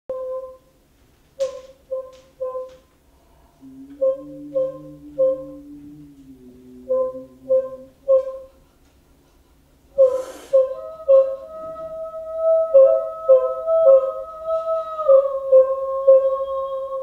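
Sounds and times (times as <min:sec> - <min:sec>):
lower held note: 0:01.4 - 0:08.5, 0:10.0 - 0:17.0
repeated short musical notes: 0:03.6 - 0:08.5.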